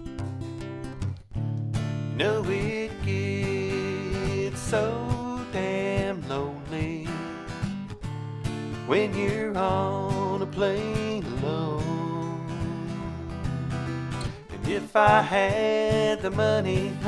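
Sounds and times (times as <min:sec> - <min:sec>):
acoustic guitar: 0:00.0 - 0:17.0
man singing: 0:02.1 - 0:07.6, 0:08.7 - 0:13.7, 0:14.5 - 0:17.0.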